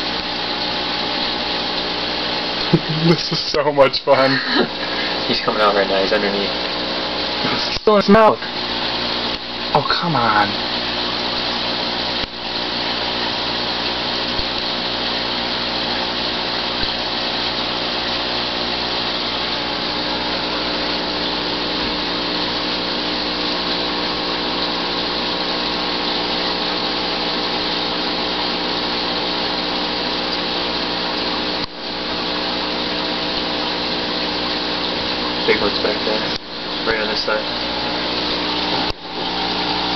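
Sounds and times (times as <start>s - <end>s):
aquarium pump humming: 0.0s - 39.9s
bubbling water hiss: 0.0s - 39.9s.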